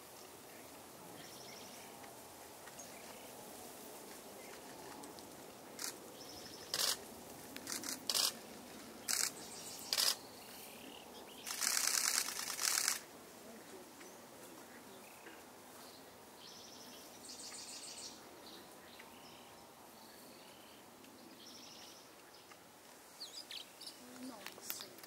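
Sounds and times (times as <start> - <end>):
camera shutter clicking: 6.7 - 7.0, 7.6 - 8.4, 9.0 - 10.2, 11.5 - 13.0.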